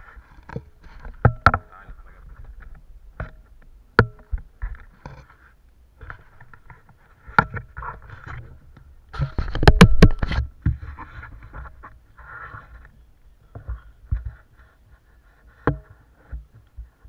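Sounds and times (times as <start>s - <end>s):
rubbing on camera mount: 9.2s - 13.0s, 13.6s - 17.0s.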